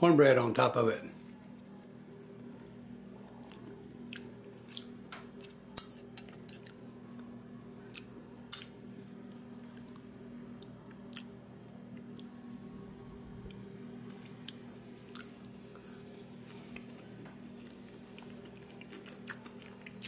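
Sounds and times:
steady low hum: 0:00.0 - 0:20.0
person chewing: 0:03.4 - 0:06.8, 0:09.5 - 0:11.3, 0:12.0 - 0:12.3, 0:14.1 - 0:17.0, 0:17.6 - 0:20.0.

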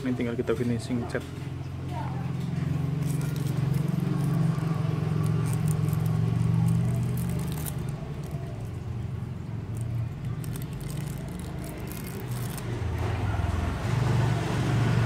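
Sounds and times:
foil crinkling: 0:02.9 - 0:08.8, 0:09.6 - 0:12.8.

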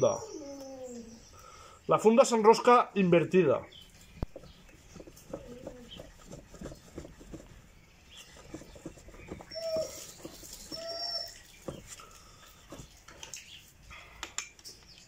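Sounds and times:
short squeaky calls: 0:09.4 - 0:11.9.

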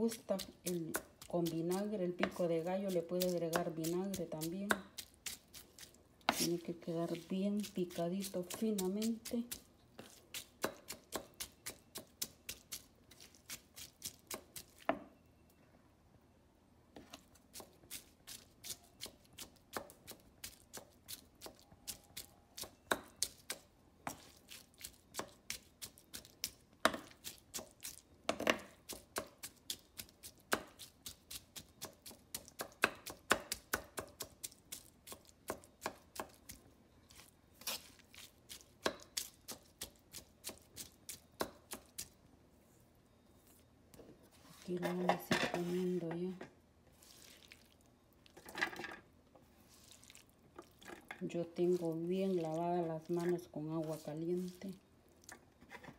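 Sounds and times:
knife chopping on wooden board: 0:10.0 - 0:12.4, 0:31.8 - 0:34.4, 0:38.8 - 0:40.6.

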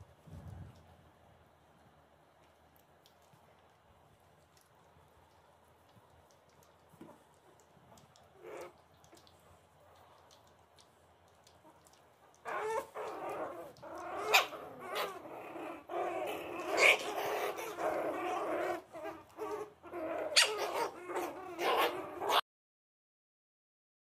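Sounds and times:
puppies growling and yapping: 0:04.4 - 0:22.4.

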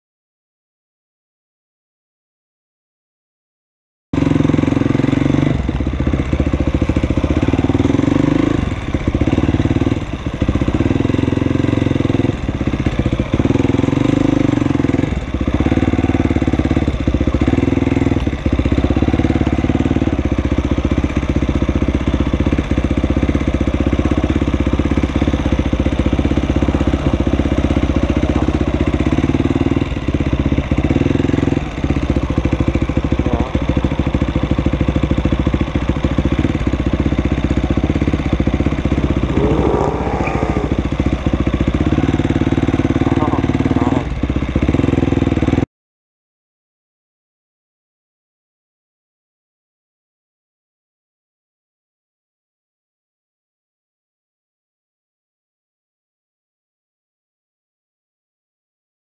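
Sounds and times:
motorcycle engine running: 0:04.2 - 0:45.7.

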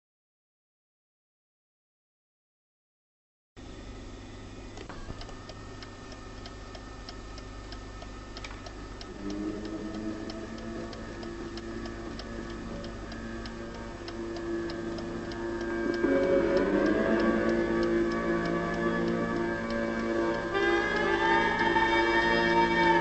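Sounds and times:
clock ticking: 0:04.8 - 0:23.0
low sustained tones: 0:08.9 - 0:23.0.

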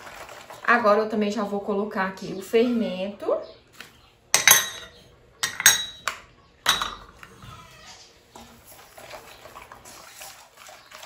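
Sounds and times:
utensils clinking against a bowl: 0:04.3 - 0:07.4.

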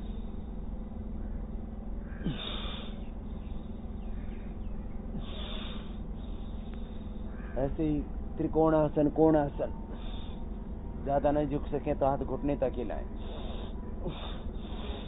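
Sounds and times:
steady low hum: 0:00.0 - 0:15.0
forceful breaths: 0:05.1 - 0:07.4, 0:09.8 - 0:10.7, 0:13.1 - 0:15.0.

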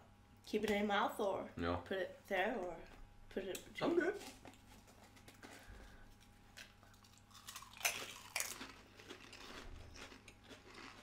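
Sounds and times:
crisp crunching: 0:06.6 - 0:11.0.

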